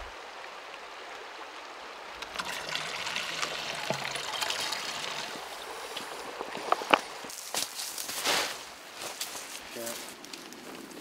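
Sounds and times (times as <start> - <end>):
water bottle filling in stream: 0.0 - 7.3
creek water trickling: 0.0 - 11.0.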